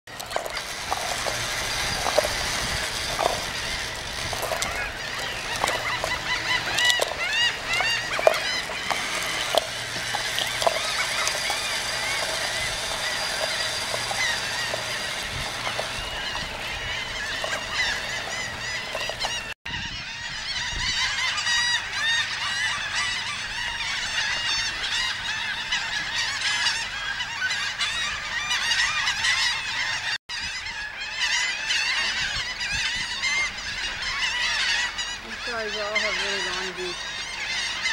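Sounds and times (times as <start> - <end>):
birds calling: 0.1 - 37.9.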